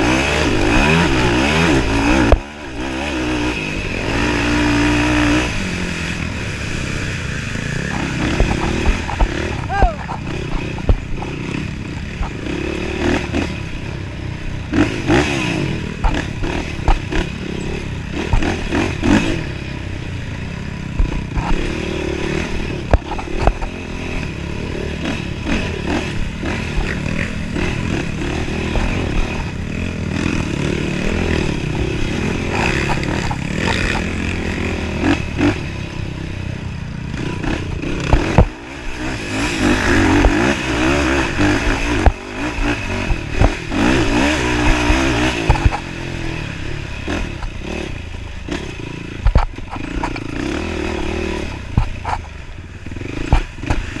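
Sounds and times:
quad engine revving: 0:00.0 - 0:54.0
knocks and rattles of bouncing: 0:31.4 - 0:34.5.

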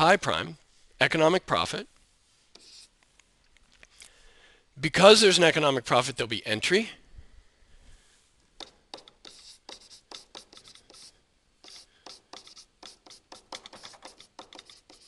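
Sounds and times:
stylus scratching on tablet: 0:02.5 - 0:03.0, 0:08.6 - 0:15.0.

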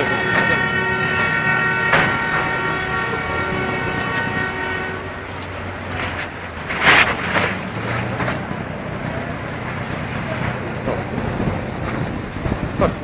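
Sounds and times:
horns sounding a chord: 0:00.0 - 0:06.1.

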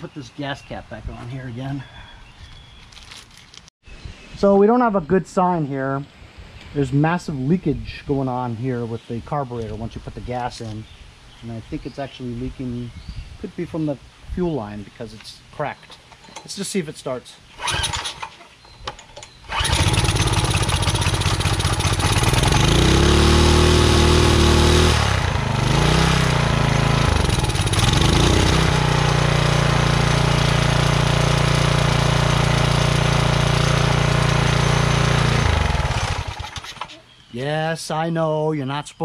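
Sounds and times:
pressure washer engine pull-started: 0:17.6 - 0:25.4, 0:27.0 - 0:36.9.

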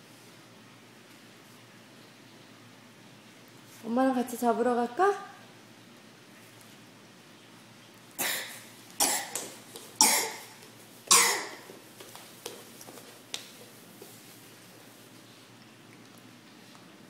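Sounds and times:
person coughing: 0:08.2 - 0:09.4, 0:10.0 - 0:11.7.

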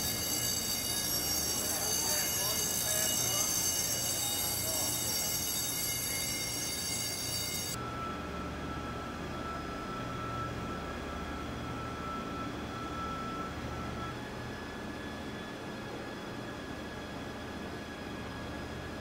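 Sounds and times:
high whining tones: 0:00.0 - 0:11.0
thin steady high tone: 0:00.0 - 0:14.2.

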